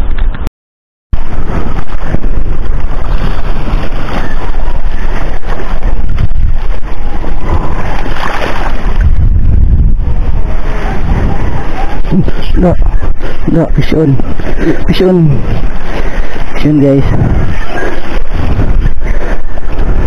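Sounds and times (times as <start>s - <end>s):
water noise: 1.1s - 20.0s
wind buffeting microphone: 1.1s - 20.0s.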